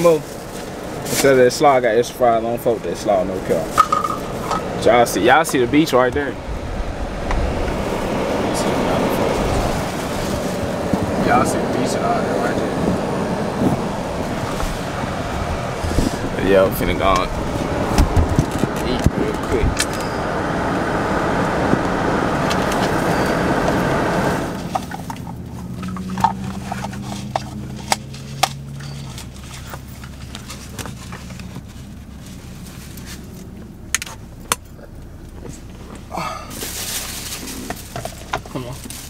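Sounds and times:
car cabin noise: 0.0 - 39.0
car keys jangling: 3.6 - 4.8, 19.8 - 20.2
plastic bag rustling: 9.3 - 11.0, 36.5 - 39.0.

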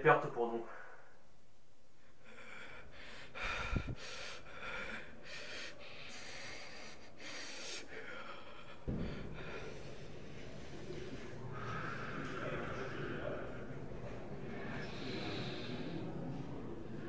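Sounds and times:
man breathing heavily: 2.0 - 16.6
low bump: 8.8 - 9.8.

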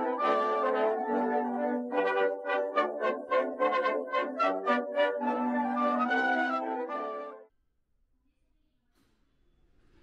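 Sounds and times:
background music melody: 0.0 - 7.5.

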